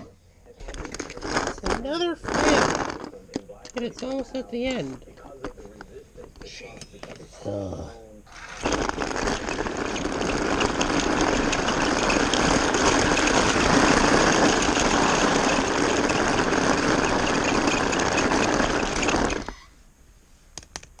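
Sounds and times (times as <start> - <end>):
toy train rattling on plastic track: 0.7 - 5.6, 8.3 - 19.7
small toy motor running: 1.5 - 3.1, 8.3 - 19.7.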